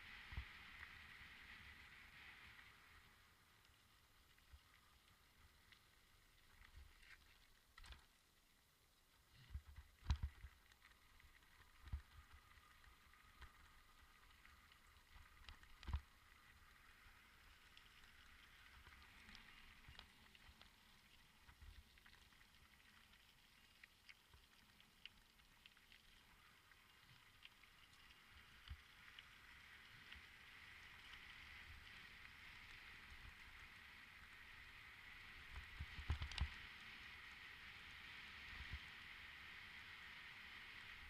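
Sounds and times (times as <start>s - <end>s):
small clicks and rattles: 9.4s - 32.8s, 35.4s - 36.6s.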